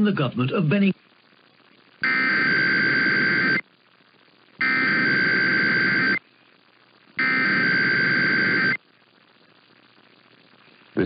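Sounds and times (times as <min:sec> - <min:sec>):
faint static hiss: 0:00.0 - 0:11.0
warbling two-tone digital data bursts: 0:02.0 - 0:03.6, 0:04.6 - 0:06.2, 0:07.2 - 0:08.8.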